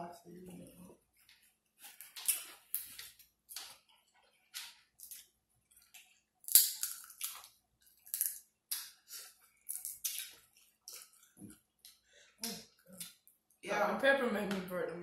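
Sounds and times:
crab shell cracking: 0:06.4 - 0:08.9.

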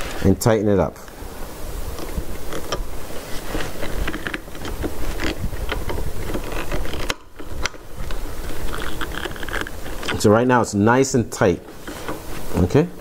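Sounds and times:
metal parts clicking and scraping: 0:03.6 - 0:10.3.

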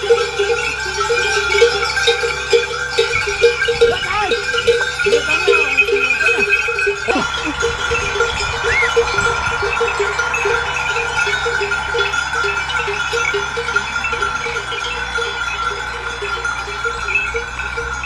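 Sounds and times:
sheep bells ringing: 0:00.0 - 0:18.0.

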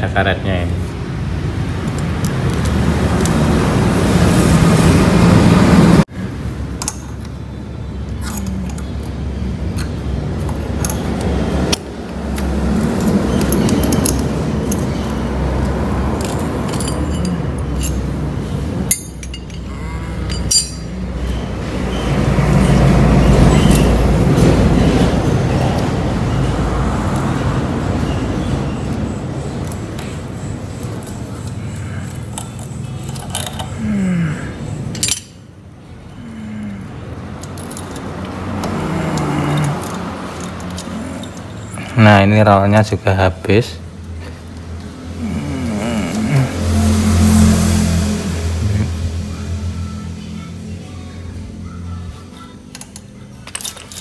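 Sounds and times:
metal clinks of engine parts: 0:08.2 - 0:25.8, 0:29.6 - 0:33.8, 0:34.8 - 0:35.5, 0:37.3 - 0:42.4, 0:52.6 - 0:54.0.

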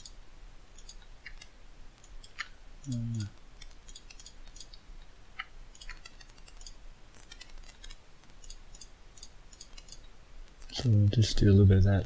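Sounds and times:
mouse buttons clicking: 0:00.8 - 0:04.8, 0:05.4 - 0:10.9.

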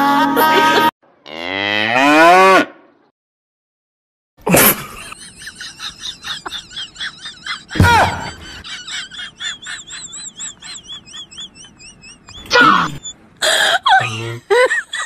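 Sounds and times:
cow mooing: 0:01.2 - 0:02.7.

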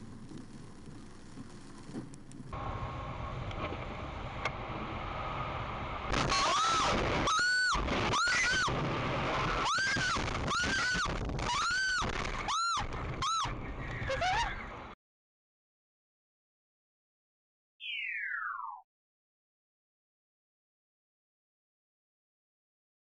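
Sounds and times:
road and rain noise: 0:00.0 - 0:15.0
rush of noise: 0:01.8 - 0:15.0
high-pitched screams: 0:06.2 - 0:08.8, 0:09.4 - 0:14.6.

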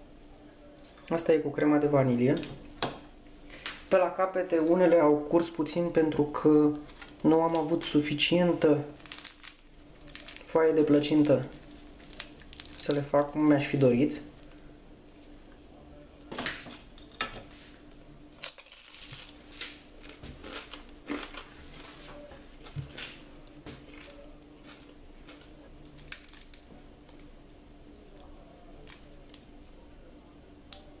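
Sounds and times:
pastry crackling: 0:05.6 - 0:14.8, 0:17.6 - 0:31.0.

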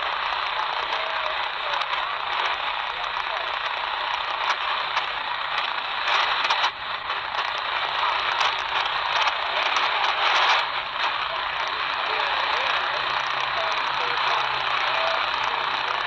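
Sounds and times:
radio static and hiss: 0:00.0 - 0:16.0
faint announcer's voice: 0:08.8 - 0:16.0.

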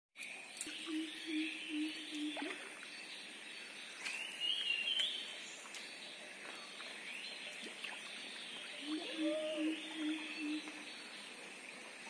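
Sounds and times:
bird's rising wavering call: 0:08.8 - 0:10.9.

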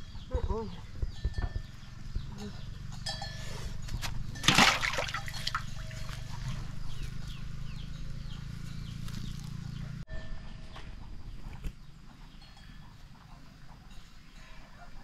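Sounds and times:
fish splashing into water: 0:04.4 - 0:06.4
small water splashes: 0:04.4 - 0:06.6.

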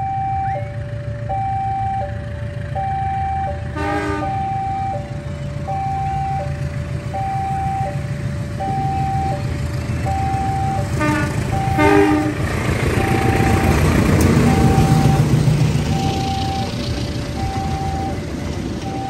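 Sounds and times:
passenger train rumble: 0:00.0 - 0:19.0
two-tone crossing alarm: 0:00.0 - 0:19.0
train horn blasts: 0:03.7 - 0:04.6, 0:10.9 - 0:12.5.

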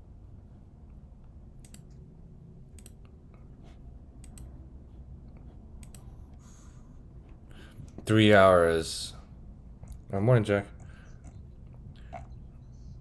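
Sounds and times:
faint low hum: 0:00.0 - 0:13.0
computer mouse clicking: 0:01.2 - 0:02.0, 0:02.7 - 0:03.2, 0:04.2 - 0:04.6, 0:05.3 - 0:06.1.

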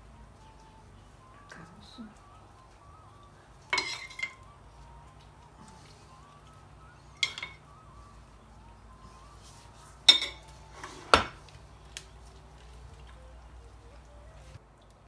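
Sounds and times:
spoon clinking against a dish: 0:03.6 - 0:04.5, 0:07.2 - 0:07.7, 0:10.0 - 0:10.6.

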